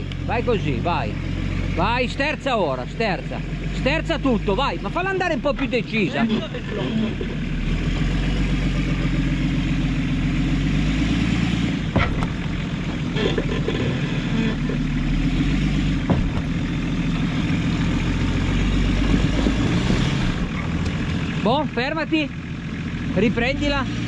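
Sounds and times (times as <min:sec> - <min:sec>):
engine running at low revs: 0:00.0 - 0:24.0
sharp knocks: 0:11.9 - 0:13.0, 0:16.0 - 0:16.6.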